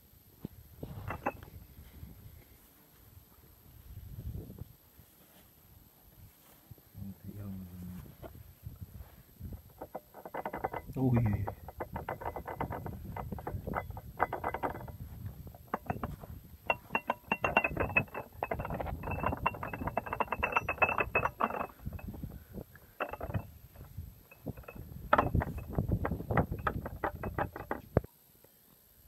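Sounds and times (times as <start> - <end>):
metallic gear clicking and rattling: 15.7 - 22.1, 23.0 - 27.8.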